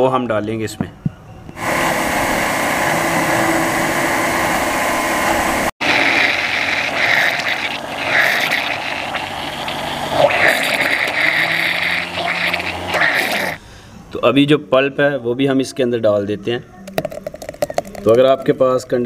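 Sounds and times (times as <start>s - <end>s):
electric blender running: 1.6s - 13.6s.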